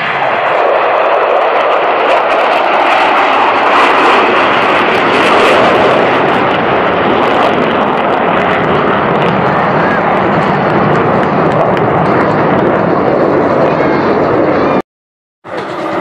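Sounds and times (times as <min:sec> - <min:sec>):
jet aircraft roaring overhead: 0:00.0 - 0:14.8, 0:15.4 - 0:16.0.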